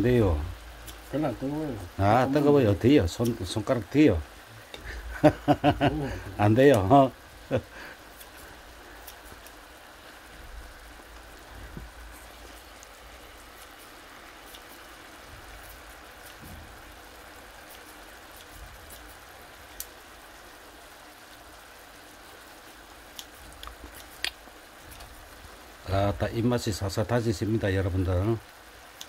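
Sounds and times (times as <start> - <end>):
meat sizzling in a frying pan: 0.0 - 29.0.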